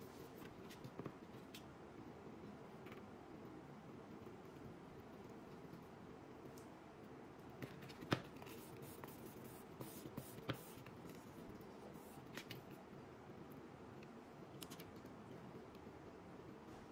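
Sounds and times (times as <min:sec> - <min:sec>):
low steady room hum: 0:00.0 - 0:16.9
small clicks and scrapes of handling: 0:14.0 - 0:15.8.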